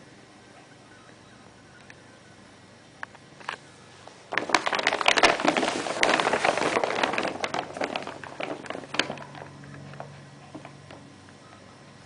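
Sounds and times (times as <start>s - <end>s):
paper bag crinkling and rustling: 4.2s - 10.8s.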